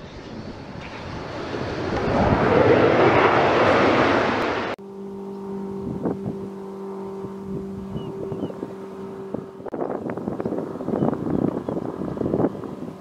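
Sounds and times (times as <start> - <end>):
loud jet-like whoosh: 0.0 - 4.8
wind buffeting microphone: 0.0 - 4.8, 5.7 - 13.0
steady two-note hum: 4.8 - 12.2.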